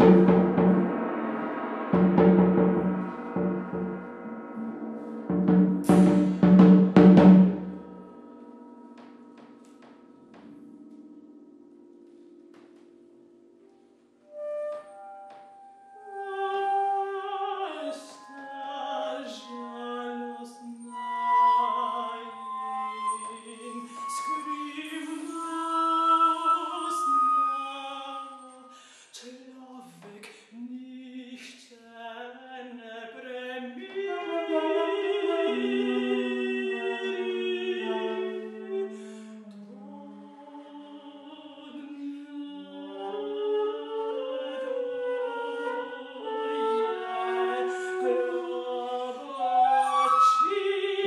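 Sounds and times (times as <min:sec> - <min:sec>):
flute: 0:00.0 - 0:08.7, 0:14.2 - 0:29.0, 0:33.8 - 0:51.0
woman singing: 0:16.1 - 0:51.0.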